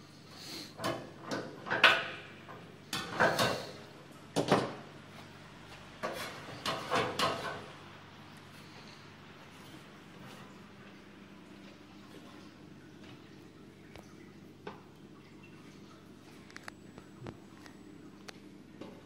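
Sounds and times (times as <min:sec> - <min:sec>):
metal pan clattering on burner: 0:06.0 - 0:07.6.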